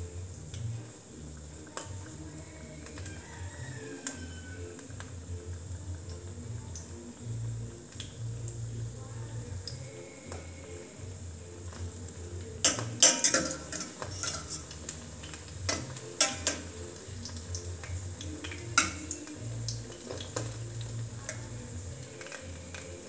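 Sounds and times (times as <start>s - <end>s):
oil sizzling: 0.0s - 23.0s
knife clinking and scraping a pan: 12.6s - 16.8s, 18.4s - 19.1s.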